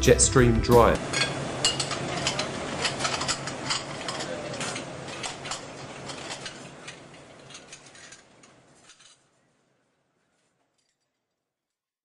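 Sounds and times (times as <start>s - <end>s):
dishwasher conveyor running: 0.9s - 9.2s
china plates clinking: 1.0s - 9.3s.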